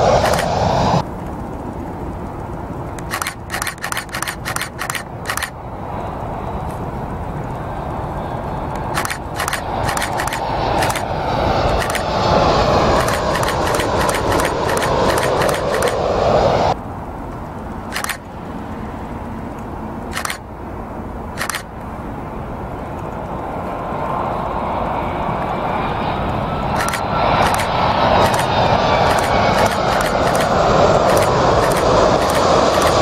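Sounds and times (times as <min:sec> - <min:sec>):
sharp clicks: 0:00.0 - 0:00.6, 0:02.8 - 0:05.6, 0:08.7 - 0:12.2, 0:12.9 - 0:16.1, 0:17.9 - 0:18.3, 0:19.5 - 0:20.4, 0:21.4 - 0:21.8, 0:26.7 - 0:33.0
distant jet noise: 0:00.0 - 0:33.0
jet airliner engine rush: 0:00.0 - 0:33.0.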